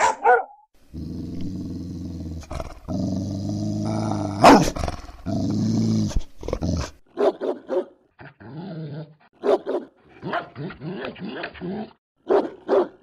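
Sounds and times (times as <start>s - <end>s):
dog barking: 0.0s - 0.6s, 4.4s - 4.8s, 7.1s - 8.0s, 9.4s - 10.6s, 12.2s - 13.0s
dog growling: 0.9s - 7.0s.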